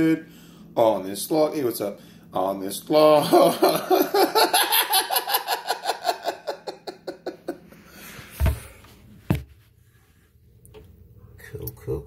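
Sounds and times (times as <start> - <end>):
person laughing: 3.2 - 7.7
dull thump: 8.4 - 9.6.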